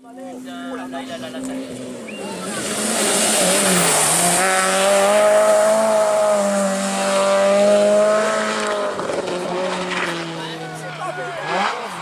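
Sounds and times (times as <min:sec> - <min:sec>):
rally car engine at high revs: 0:00.7 - 0:12.0.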